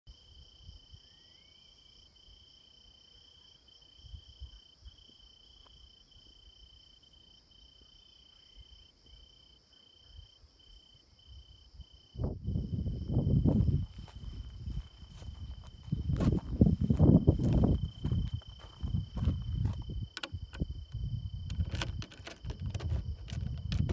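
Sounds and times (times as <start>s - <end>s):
crickets trilling: 0.1s - 23.9s
low rumble on microphone: 12.2s - 23.9s.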